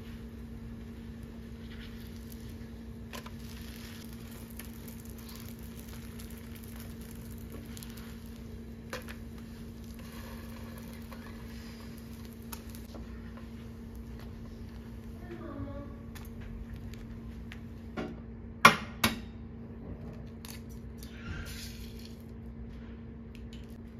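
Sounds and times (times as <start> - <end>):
flatbread sizzling in a pan: 0.0 - 15.0
steady low hum: 0.0 - 23.9.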